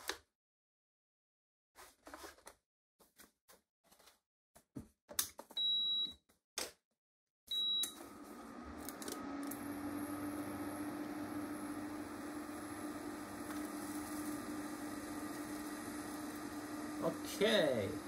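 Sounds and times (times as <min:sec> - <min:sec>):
cooling fan whirring: 0:08.4 - 0:18.0.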